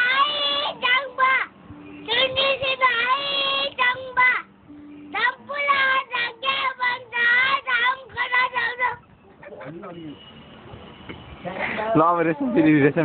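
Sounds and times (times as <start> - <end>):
small boy singing unaccompanied: 0.0 - 4.5, 5.1 - 9.1.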